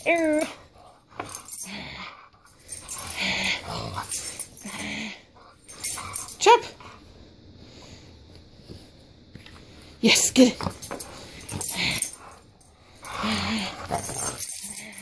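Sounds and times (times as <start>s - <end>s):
dog play-growling and huffing: 0.2s - 7.0s, 10.6s - 15.0s.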